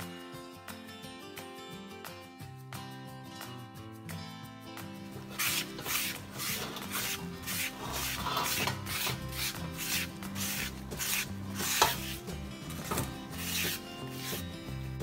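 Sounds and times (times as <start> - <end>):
soft background music: 0.0 - 15.0
brush scrubbing metal pan: 5.3 - 14.5.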